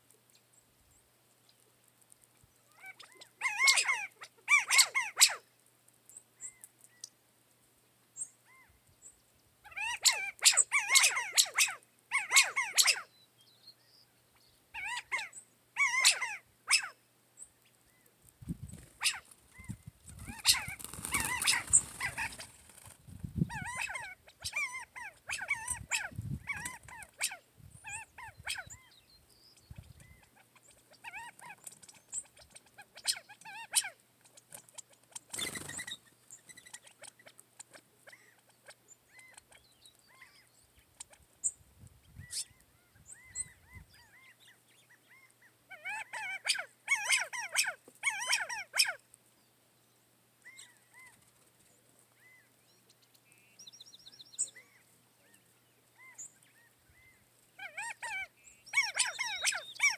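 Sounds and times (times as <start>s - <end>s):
rustling: 18.2s - 23.2s
short sharp animal calls: 19.0s - 22.5s.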